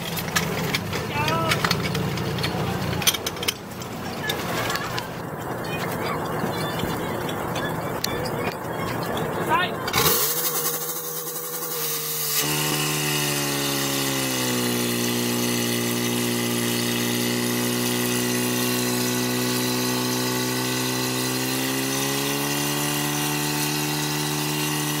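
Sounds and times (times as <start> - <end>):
small pump engine running at high revs: 0.0 - 3.9, 9.9 - 25.0.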